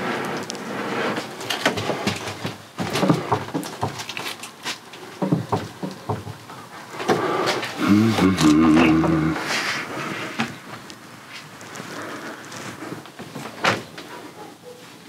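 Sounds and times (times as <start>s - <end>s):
fridge knocking and bumping: 1.8s - 4.1s, 5.2s - 7.2s.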